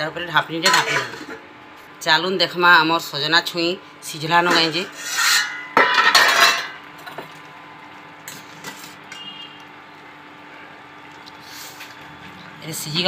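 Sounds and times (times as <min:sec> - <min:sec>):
steel lid scraping off pot: 0:04.5 - 0:06.7.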